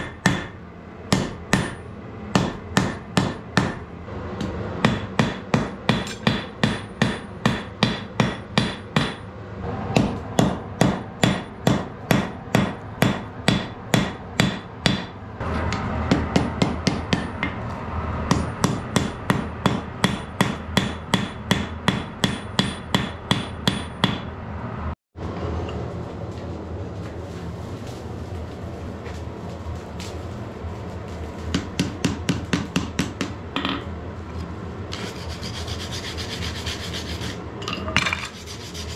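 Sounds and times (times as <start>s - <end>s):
hammer striking metal on anvil: 0.0s - 9.3s, 10.0s - 17.6s, 18.3s - 24.3s.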